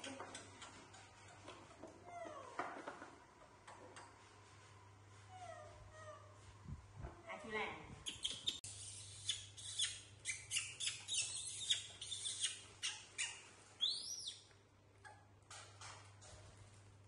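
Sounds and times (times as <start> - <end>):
baby monkey squealing: 8.0 - 14.4.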